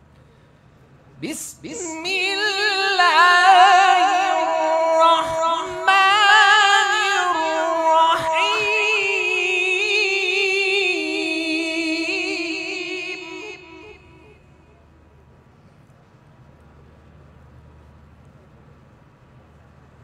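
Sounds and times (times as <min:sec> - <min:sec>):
man reciting melodically: 0:01.2 - 0:14.3.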